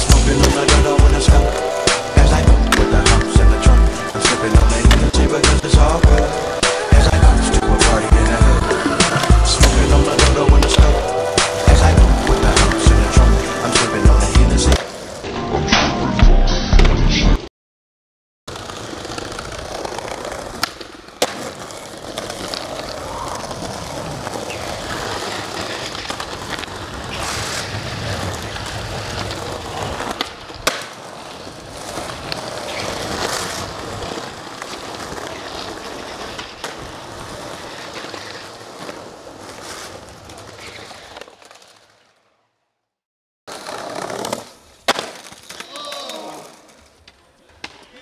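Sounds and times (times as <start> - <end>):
skateboard clacks: 0.0 - 7.1, 18.5 - 42.0, 43.5 - 48.0
skateboard wheels rolling on pavement: 0.0 - 15.3, 18.5 - 48.0.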